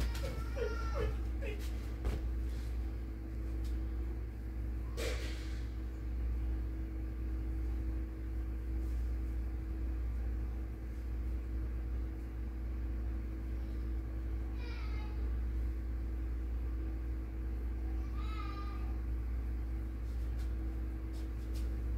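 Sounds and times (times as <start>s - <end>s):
low mechanical hum: 0.0s - 21.9s.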